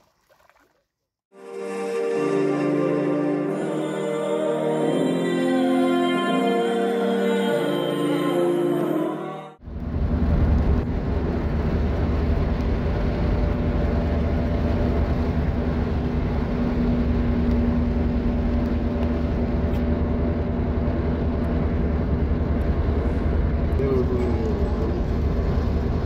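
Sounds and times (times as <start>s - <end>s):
car interior road noise: 9.6s - 26.0s.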